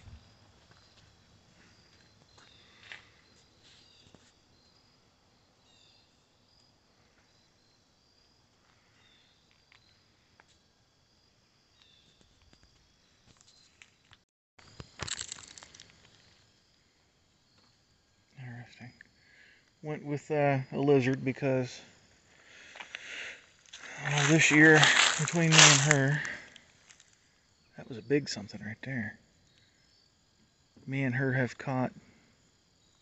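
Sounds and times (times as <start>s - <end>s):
crackly rustling and crunching: 11.8s - 16.5s, 22.6s - 27.2s.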